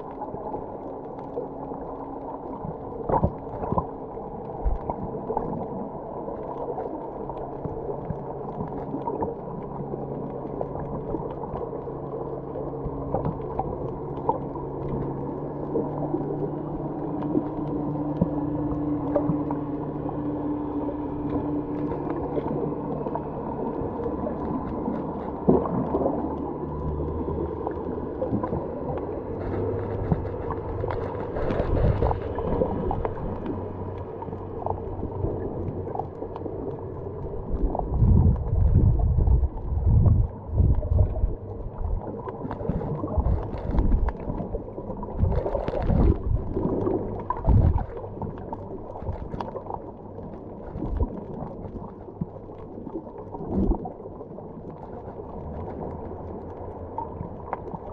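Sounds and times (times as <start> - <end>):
loud low water surges: 0.0 - 57.9
muffled underwater water rumble: 0.0 - 57.9.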